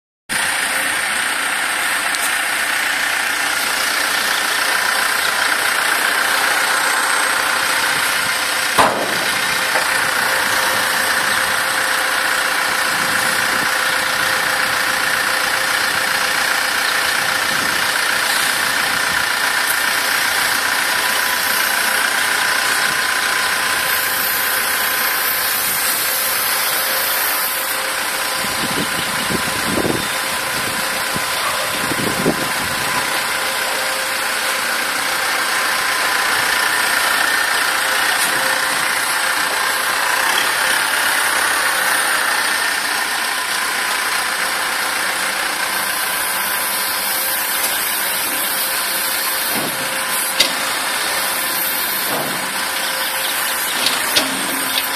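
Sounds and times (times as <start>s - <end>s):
diesel engine running: 0.3s - 54.9s
sharp knock: 8.8s - 9.2s.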